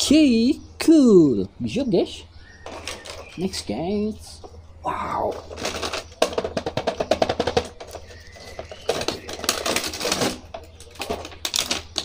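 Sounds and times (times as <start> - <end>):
plastic packaging crinkling: 5.3 - 12.0.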